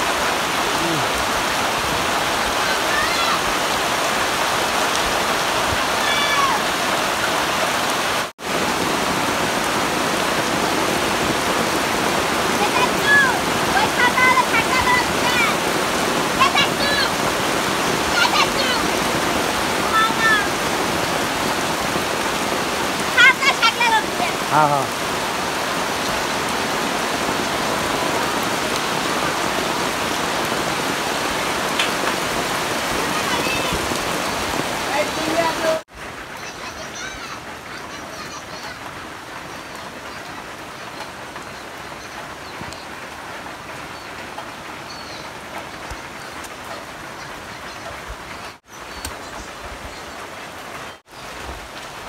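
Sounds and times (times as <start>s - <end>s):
heavy rain on water and mud: 0.0s - 52.0s.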